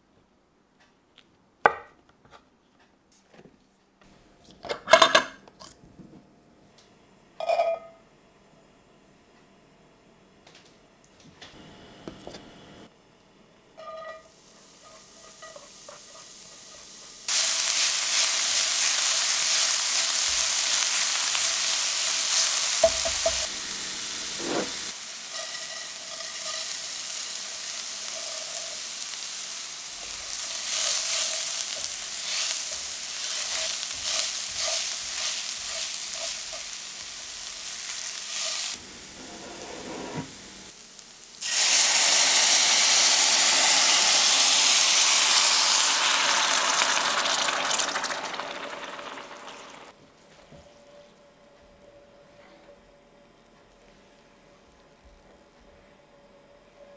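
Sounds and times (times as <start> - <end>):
spoon scraping skillet: 13.8 - 23.5, 24.2 - 29.4, 30.0 - 40.4
oil sizzling in skillet: 13.8 - 39.4, 40.1 - 50.0.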